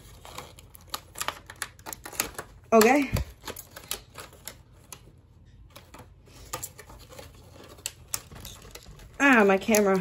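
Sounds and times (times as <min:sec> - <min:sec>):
plastic packaging clicking and crinkling: 0:00.0 - 0:10.0
plastic packaging snapping: 0:00.2 - 0:05.0.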